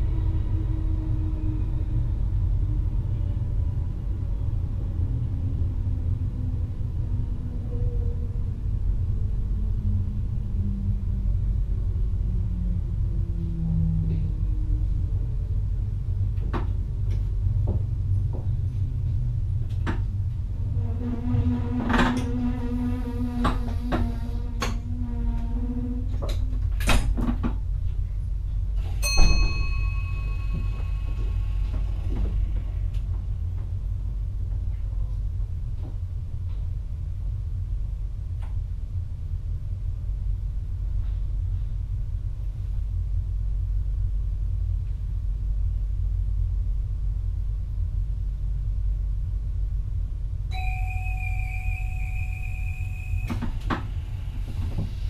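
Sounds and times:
electric train rumbling: 0.0 - 55.0
bell-like ding: 29.0 - 31.3, 50.5 - 53.7
two-pitched warning tone: 50.5 - 54.2.

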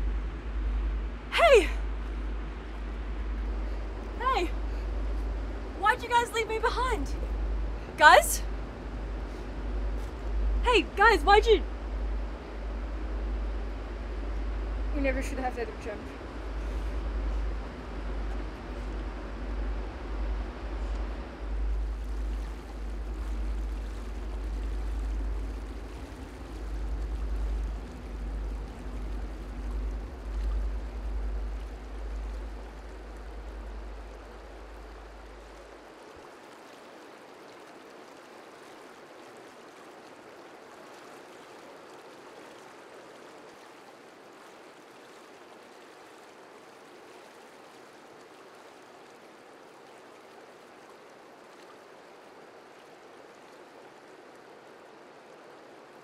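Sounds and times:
low rumble: 0.0 - 36.2
river water rushing over rocks: 0.0 - 56.0.

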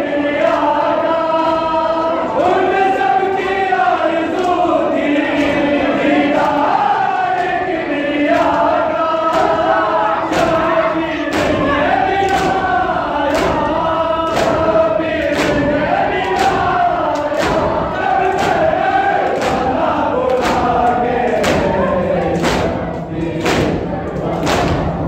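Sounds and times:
men chanting in unison: 0.0 - 25.0
hands slapping chests: 11.3 - 12.7, 13.3 - 23.8, 24.4 - 24.9.

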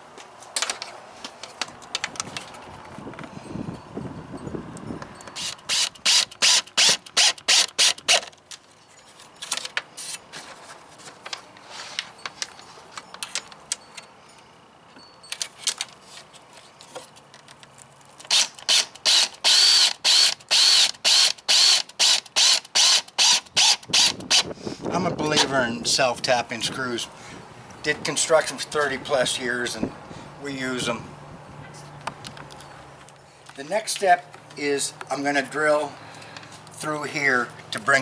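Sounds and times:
drill clutch clicking: 5.3 - 8.4, 18.3 - 24.5.

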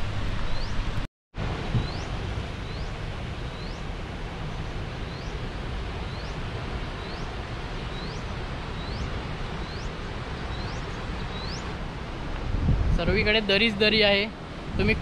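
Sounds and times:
waterfall roaring: 0.0 - 15.0
wind buffeting microphone: 0.0 - 15.0
bird rising chirp: 1.8 - 3.8, 6.1 - 6.4, 7.0 - 7.3, 7.9 - 11.7.

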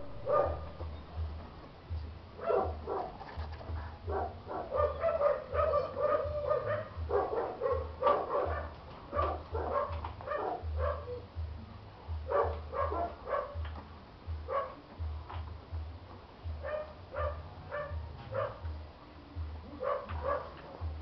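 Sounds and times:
puppy yelping and whimpering: 4.8 - 7.0.

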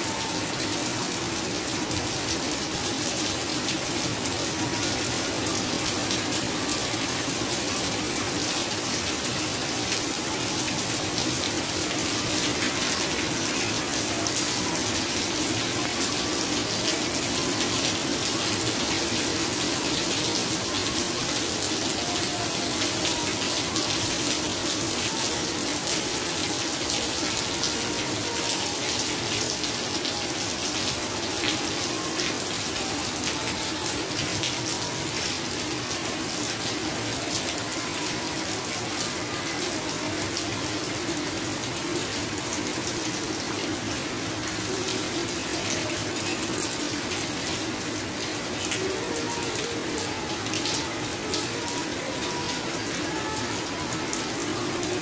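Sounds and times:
heavy rain splashing on tiled floor: 0.0 - 55.0.

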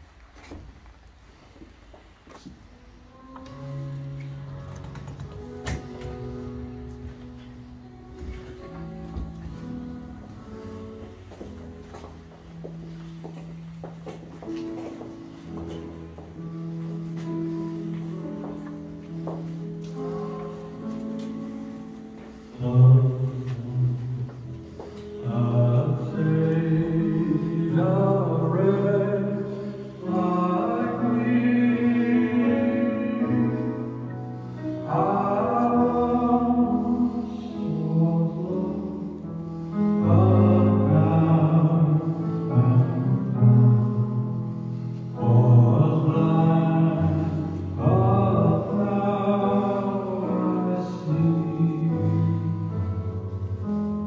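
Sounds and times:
hymn singing: 2.5 - 54.0.

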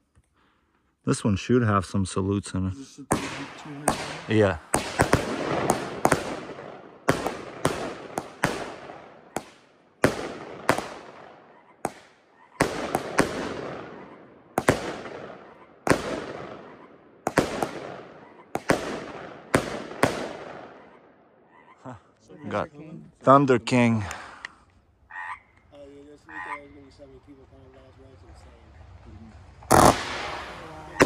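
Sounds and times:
fireworks bangs echoing: 3.0 - 20.9, 29.7 - 31.0.

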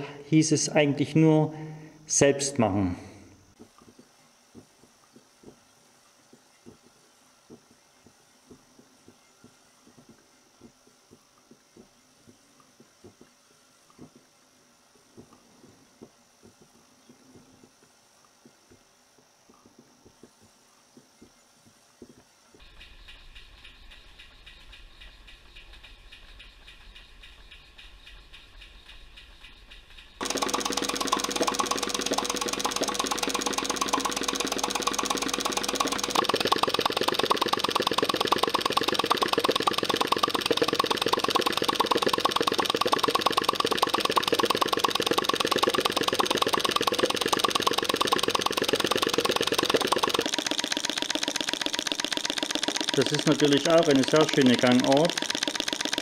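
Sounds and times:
faint machine sound: 0.0 - 56.0
model engine running fast: 30.2 - 56.0.

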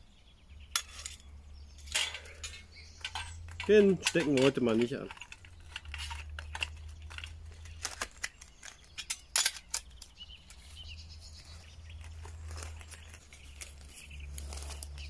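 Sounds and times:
bird chirp: 0.0 - 15.0
metal clicks and knocks: 1.8 - 10.6.

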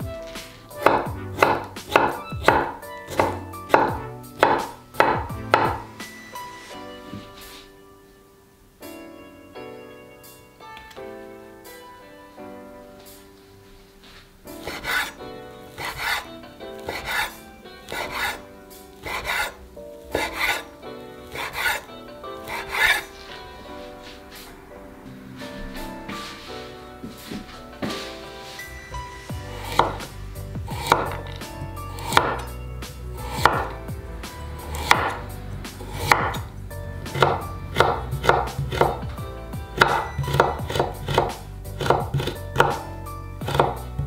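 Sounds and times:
soft background music: 0.0 - 44.0
knife chopping on cutting board: 0.8 - 5.9, 14.6 - 15.1, 15.8 - 16.2, 16.8 - 18.4, 19.0 - 19.5, 21.3 - 21.8, 29.6 - 30.1, 30.7 - 31.3, 32.0 - 32.4, 33.2 - 33.8, 34.7 - 35.2, 35.9 - 36.4, 37.1 - 39.0, 39.8 - 42.8, 43.4 - 43.8
knife slicing on cutting board: 14.6 - 15.1, 15.8 - 18.4, 19.0 - 19.6, 20.2 - 20.7, 21.3 - 23.1, 30.8 - 31.3, 33.2 - 33.7.

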